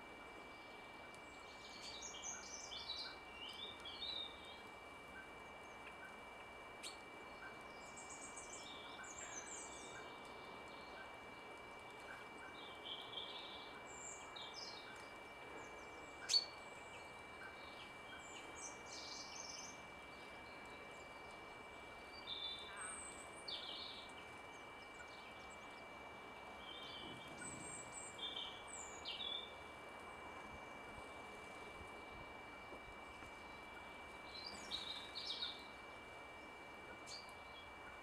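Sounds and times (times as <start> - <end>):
birds chirping: 0.3 - 38.0.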